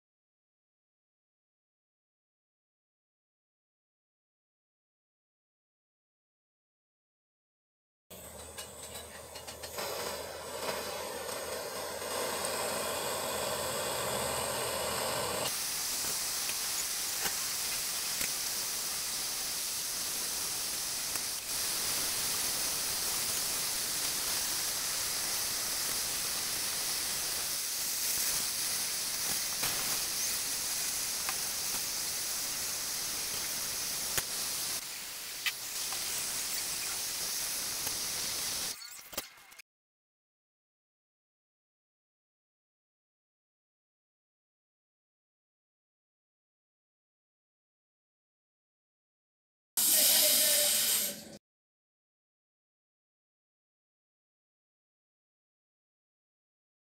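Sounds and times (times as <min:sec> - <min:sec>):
gas torch flame hissing: 0:08.2 - 0:38.8, 0:49.8 - 0:51.4.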